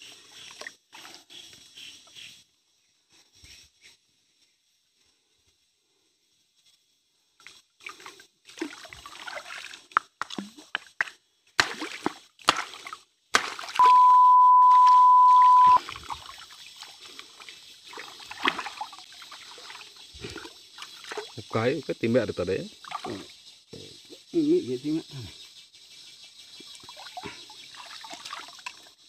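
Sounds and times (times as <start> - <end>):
water splashing around wading person: 7.8 - 10.9, 11.6 - 21.6, 22.8 - 23.3, 26.7 - 29.0
steady electronic beep: 13.8 - 15.8.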